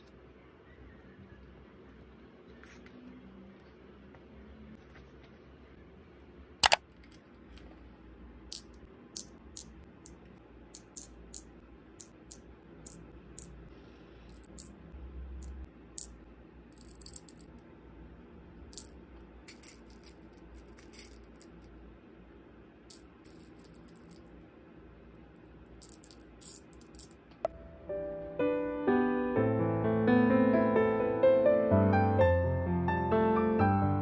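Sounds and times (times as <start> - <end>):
beads rattling: 10.8 - 13.6, 14.3 - 14.8, 15.4 - 17.6, 18.6 - 21.7, 22.9 - 24.3, 25.7 - 27.2.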